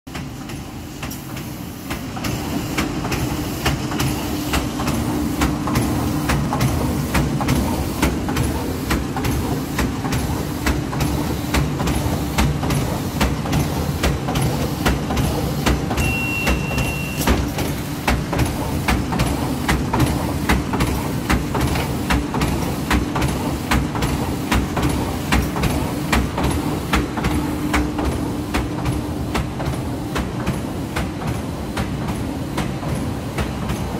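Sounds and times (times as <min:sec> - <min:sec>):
short high beep: 0:16.0 - 0:17.3.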